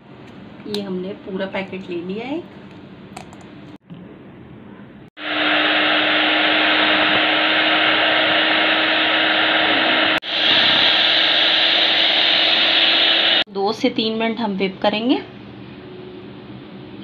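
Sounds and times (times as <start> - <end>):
electric hand mixer whipping cream: 5.2 - 13.5.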